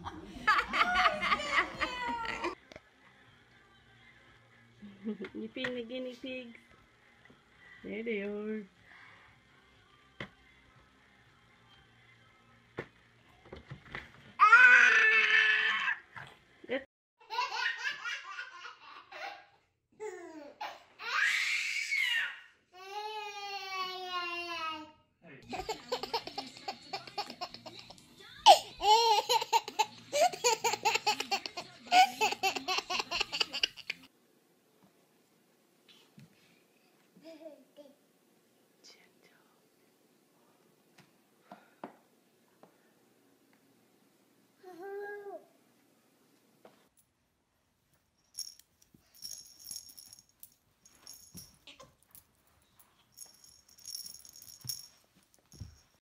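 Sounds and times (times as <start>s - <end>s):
baby laughing: 25.4s - 34.1s
jingling rattle shaken: 48.3s - 56.0s.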